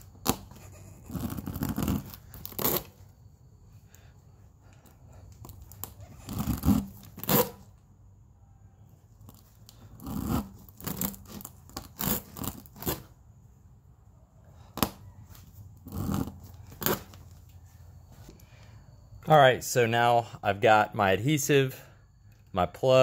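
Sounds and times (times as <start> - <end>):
rubber scraping against reamer: 0.0 - 3.0, 5.6 - 7.6, 9.9 - 13.1.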